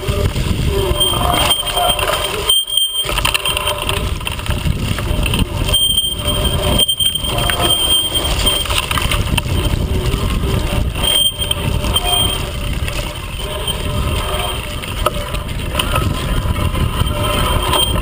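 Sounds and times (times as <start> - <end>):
bike rattling over rough ground: 0.0 - 18.0
camera shaking: 0.0 - 18.0
wind buffeting microphone: 0.0 - 18.0.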